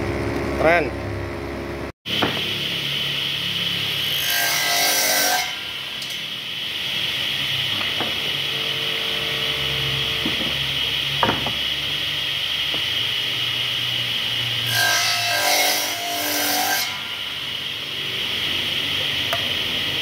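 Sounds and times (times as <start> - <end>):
circular saw whining: 2.1 - 20.0
saw blade cutting wood: 3.8 - 6.4, 14.5 - 17.4.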